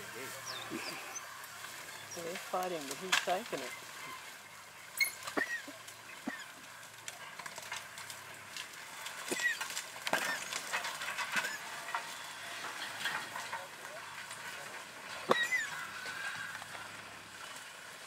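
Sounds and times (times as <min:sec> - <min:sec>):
wild dogs twittering squeaks: 0:00.3 - 0:02.6, 0:04.9 - 0:06.6, 0:09.3 - 0:10.5, 0:11.4 - 0:11.7, 0:15.3 - 0:16.5.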